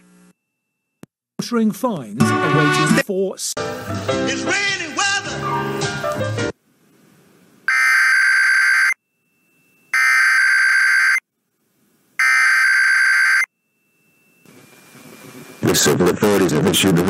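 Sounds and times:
music: 2.2 - 3.0, 3.6 - 6.6.

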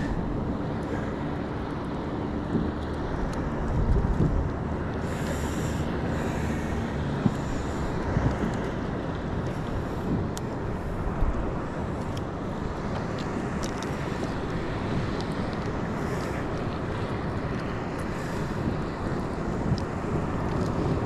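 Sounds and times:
wind buffeting microphone: 0.0 - 21.0
faint light clicks: 12.9 - 14.6.

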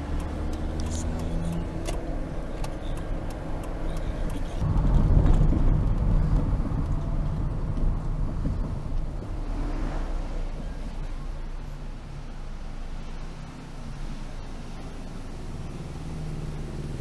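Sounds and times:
car cabin road rumble: 0.0 - 17.0.

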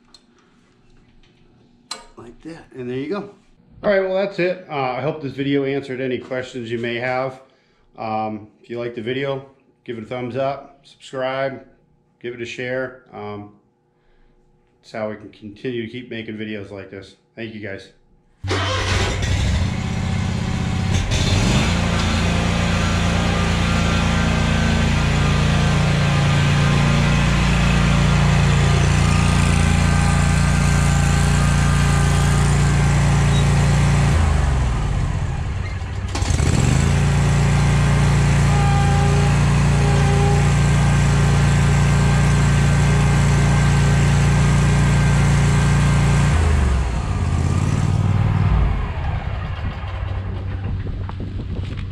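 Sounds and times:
mower engine running: 18.5 - 51.8.

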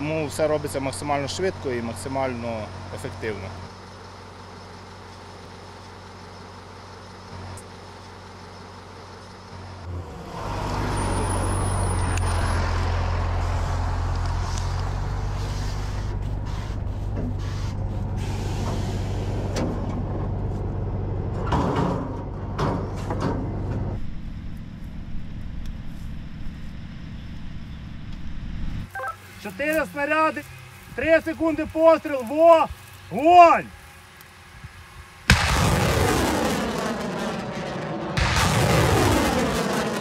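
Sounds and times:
diesel truck engine idling: 0.0 - 21.5
short hisses of machinery: 15.3 - 19.5.

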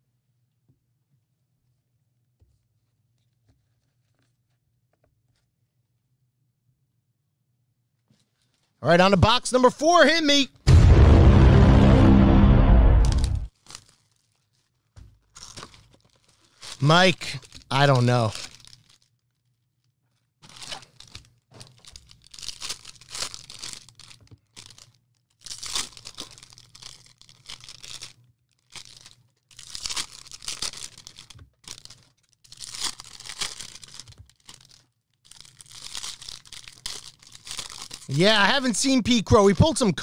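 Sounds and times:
card pack wrappers tearing and crinkling: 13.1 - 19.6, 20.4 - 40.0.

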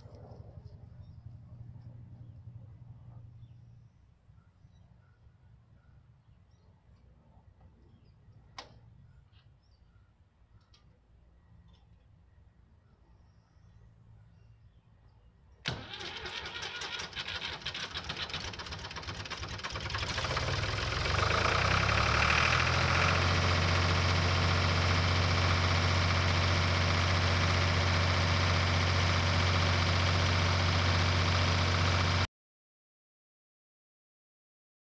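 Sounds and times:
diesel tractor engine cranking: 15.6 - 32.3
tractor engine idling: 15.7 - 32.3.

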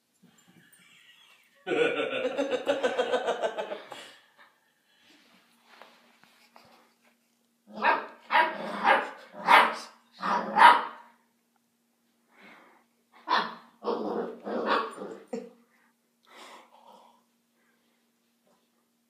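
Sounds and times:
puppy barking: 7.8 - 11.1.

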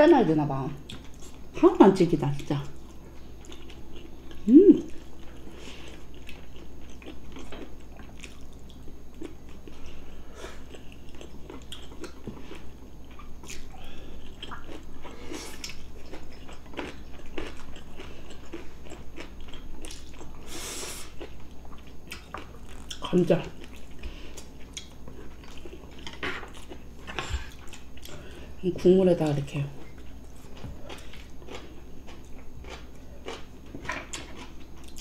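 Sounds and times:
person humming: 4.4 - 4.9
people chewing and biting: 10.6 - 23.0, 30.0 - 35.0.

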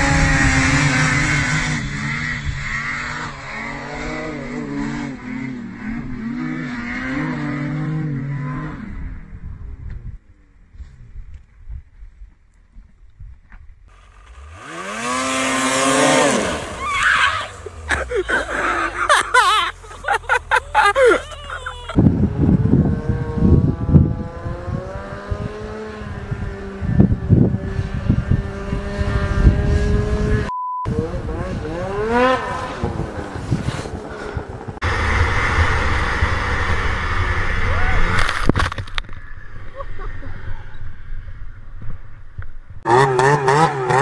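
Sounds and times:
snowmobile engines revving: 0.0 - 9.4, 13.9 - 41.3, 42.8 - 44.0
censor bleep: 30.5 - 31.0.

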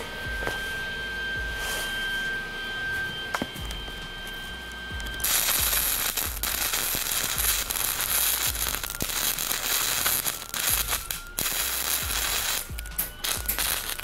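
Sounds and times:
welding arc crackling: 3.4 - 14.0.

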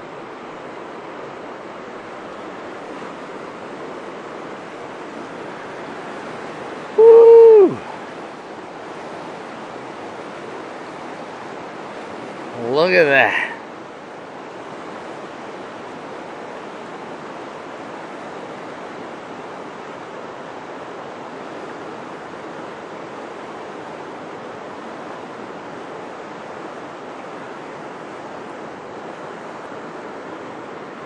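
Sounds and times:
river rushing over rocks: 0.0 - 31.0.

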